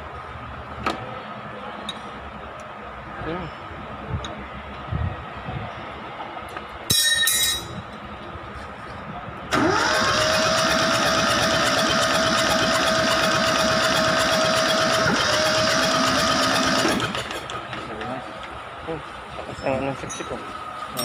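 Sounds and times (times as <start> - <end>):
starter motor cranking diesel engine: 9.5 - 17.8.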